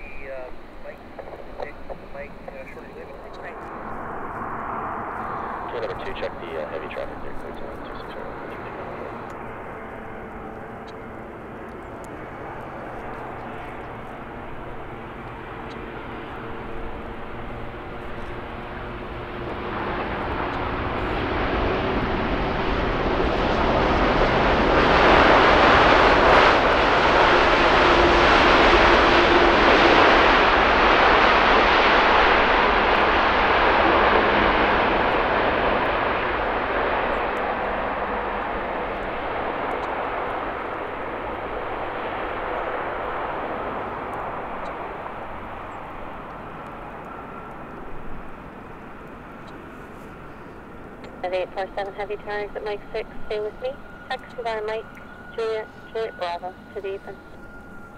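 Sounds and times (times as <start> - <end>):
jet engine roar: 0.0 - 57.9.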